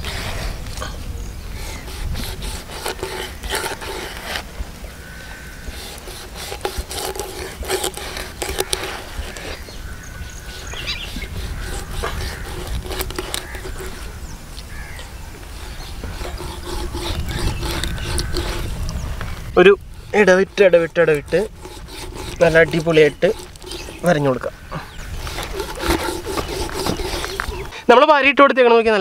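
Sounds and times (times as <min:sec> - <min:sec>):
knife scraping cuts through fish skin: 0:01.6 - 0:04.5, 0:05.7 - 0:09.7, 0:10.4 - 0:14.2, 0:15.5 - 0:19.0, 0:19.9 - 0:24.4, 0:25.1 - 0:27.8.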